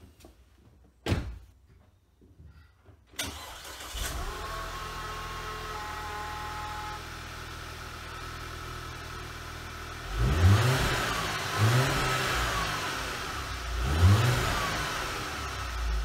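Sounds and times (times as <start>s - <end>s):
car engine idling: 3.4s - 13.8s
engine revving in blips: 10.0s - 16.0s.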